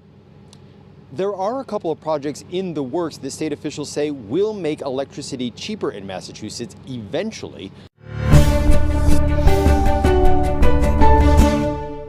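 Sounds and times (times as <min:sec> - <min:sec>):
theme music with percussion: 0:08.0 - 0:12.0.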